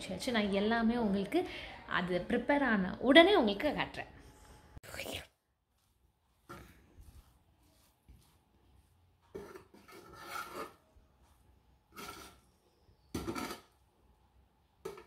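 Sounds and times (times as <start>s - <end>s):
metal spoon scraping metal pot: 9.3s - 10.8s, 11.9s - 12.6s, 13.2s - 13.8s.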